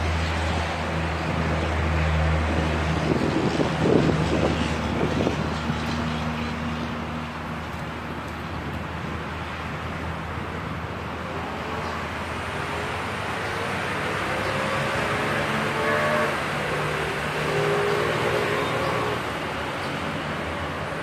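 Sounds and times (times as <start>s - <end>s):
traffic noise: 0.0s - 21.0s
vehicle engine humming: 0.0s - 21.0s
engine note rising in pitch: 14.3s - 19.2s.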